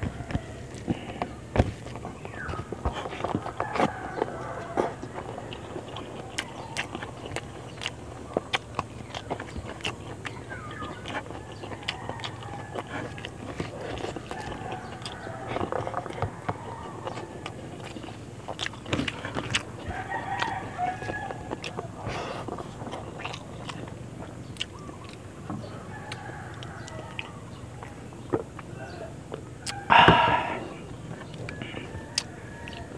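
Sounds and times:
rooster crowing: 0.0s - 1.2s, 3.3s - 7.0s, 10.5s - 18.0s, 19.8s - 22.1s, 25.6s - 28.0s, 28.8s - 30.8s, 31.4s - 32.9s
chewing and lip smacks: 0.0s - 32.9s.

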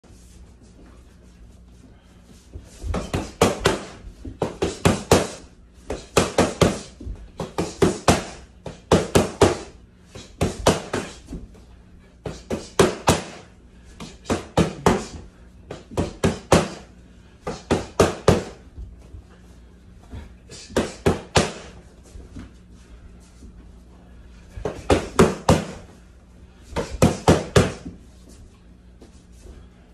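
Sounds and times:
boxing gloves smacking focus mitts: 2.9s - 11.4s, 12.2s - 18.6s, 20.7s - 21.8s, 24.6s - 25.9s, 26.8s - 28.0s.

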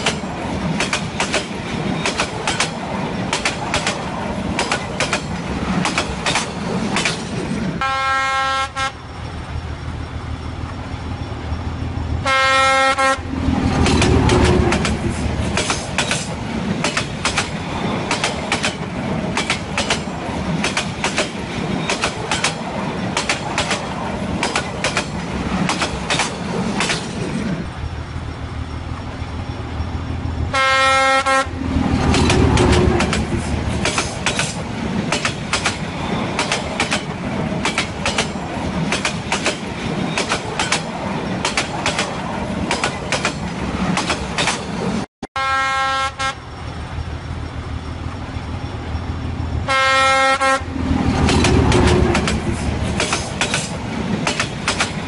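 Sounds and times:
train wheels clacking over rail joints: 0.0s - 7.7s, 13.4s - 27.7s, 31.8s - 45.0s, 50.4s - 55.0s
train horn blast: 7.8s - 9.0s, 12.2s - 13.4s, 30.5s - 31.6s, 45.3s - 46.4s, 49.6s - 50.8s.

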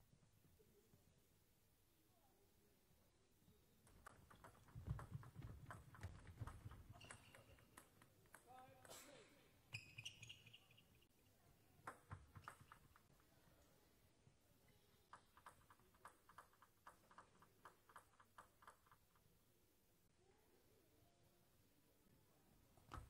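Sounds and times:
table tennis ball bouncing: 3.9s - 9.0s, 11.8s - 13.1s.

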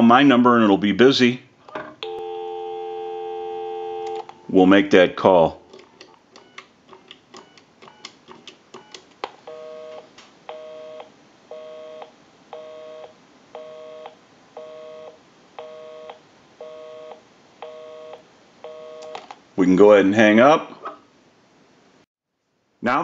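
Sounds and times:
busy signal buzz: 2.0s - 4.2s
keypad dialing beeps: 7.4s - 8.1s.

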